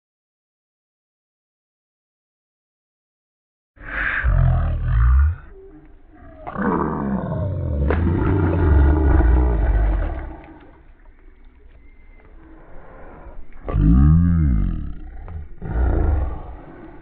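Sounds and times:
slowed splash deep rumble: 7.2 - 10.9.

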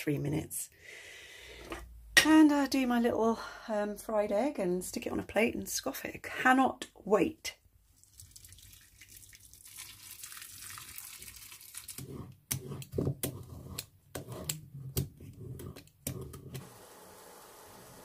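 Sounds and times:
water poured into frying pan: 8.0 - 12.0
water simmering in pan: 8.0 - 12.0.

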